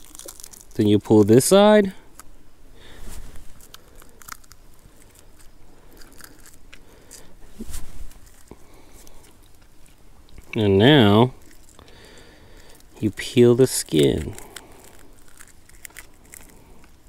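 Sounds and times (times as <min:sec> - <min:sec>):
cooked fish crackling and crunching: 0:00.0 - 0:07.5, 0:08.1 - 0:17.0.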